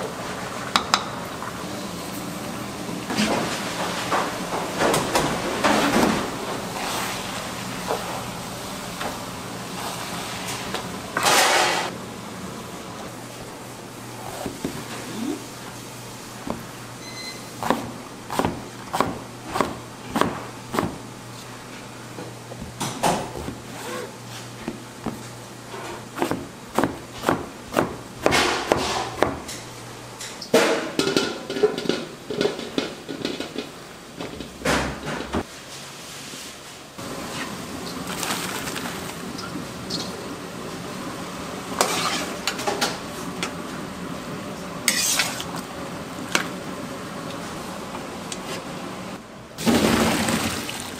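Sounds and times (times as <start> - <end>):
knife chopping on cutting board: 17.6 - 21.0, 26.2 - 29.4
wooden spatula scraping a pan: 41.8 - 42.4.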